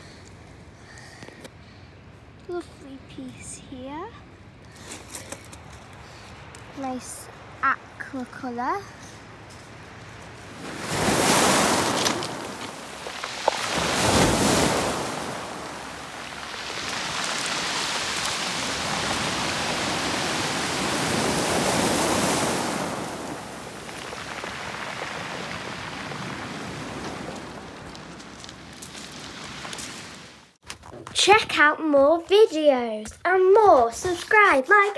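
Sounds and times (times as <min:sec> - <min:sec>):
waves washing over pebbles: 0:10.5 - 0:30.6.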